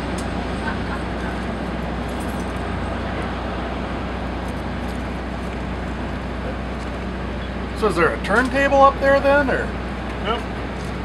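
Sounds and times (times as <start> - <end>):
diesel locomotive engine hum: 0.0 - 11.0.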